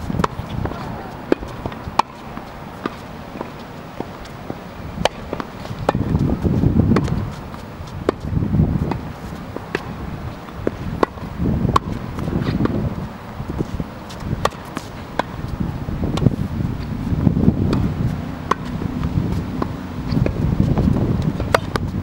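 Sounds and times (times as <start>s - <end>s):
tennis ball hit with racket: 0.0s - 22.0s
ball bouncing on hard court: 0.1s - 9.0s.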